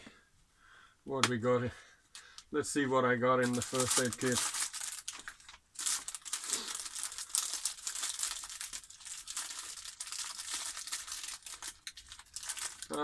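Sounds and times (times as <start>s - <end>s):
plastic packaging crinkling: 3.4s - 13.0s.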